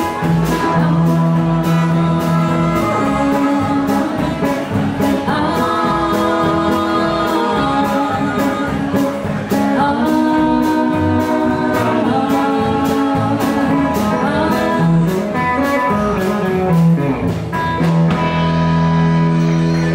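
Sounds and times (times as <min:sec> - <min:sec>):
harmonica: 0:00.0 - 0:09.1
person singing: 0:00.0 - 0:17.0
steady drum beat: 0:00.0 - 0:19.0
electric and acoustic guitars: 0:00.0 - 0:19.9.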